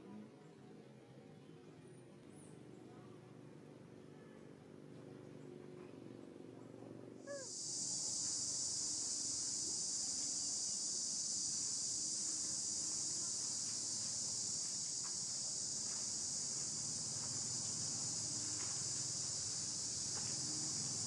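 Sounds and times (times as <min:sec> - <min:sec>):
high-pitched insect chorus: 0:07.3 - 0:21.0.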